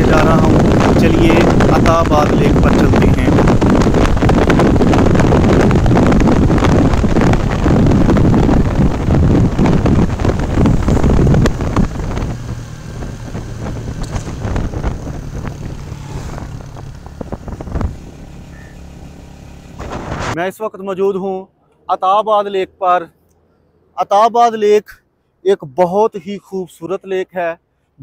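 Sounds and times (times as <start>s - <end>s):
engine hum: 0.0s - 20.4s
vehicle road and wind rumble: 0.0s - 20.5s.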